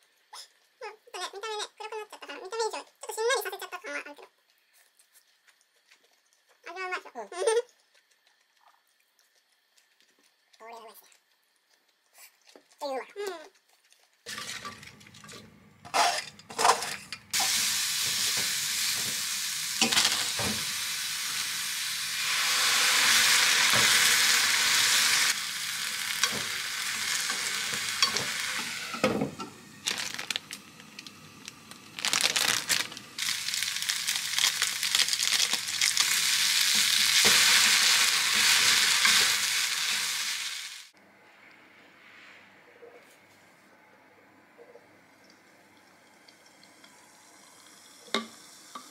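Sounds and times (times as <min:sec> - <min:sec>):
sharp clatters in a pan: 0:14.3 - 0:19.2
food sizzling in a frying pan: 0:14.3 - 0:41.0, 0:46.5 - 0:48.9.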